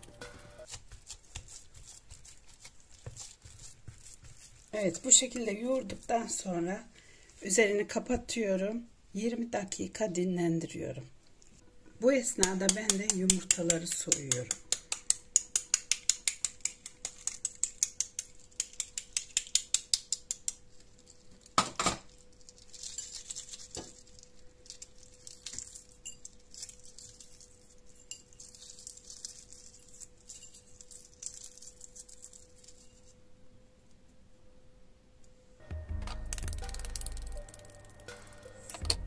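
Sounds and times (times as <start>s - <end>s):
knife tapping on eggshell: 12.4s - 20.6s
eggshell crackling as peeled: 12.4s - 33.0s, 36.0s - 39.0s.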